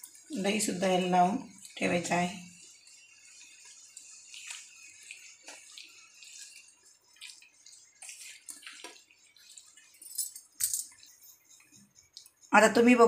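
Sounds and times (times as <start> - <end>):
hand squishing meat in marinade: 3.2 - 9.9.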